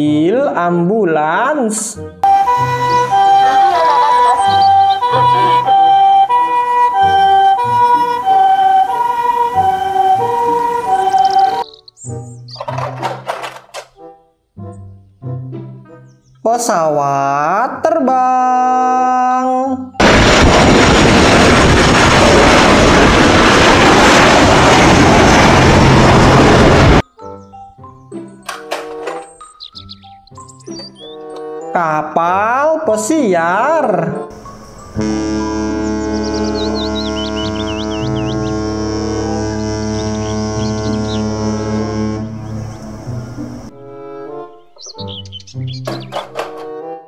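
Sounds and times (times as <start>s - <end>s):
jet engines roaring: 2.2s - 11.6s, 20.0s - 27.0s
two-tone ambulance siren: 2.2s - 11.8s, 23.9s - 27.0s, 34.3s - 43.7s.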